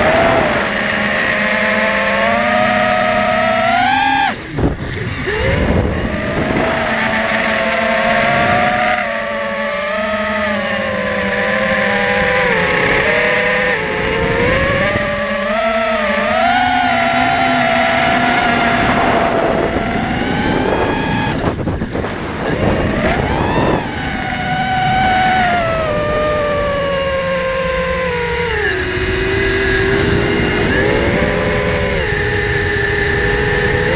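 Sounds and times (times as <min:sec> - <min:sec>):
quadcopter propellers whining: 0:00.0 - 0:33.9.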